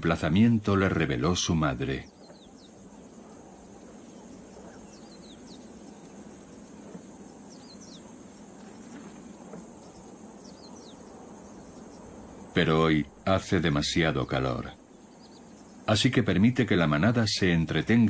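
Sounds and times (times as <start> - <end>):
soft ambient hiss: 0.0 - 18.0
falling bird chirps: 0.8 - 12.5, 14.4 - 16.2.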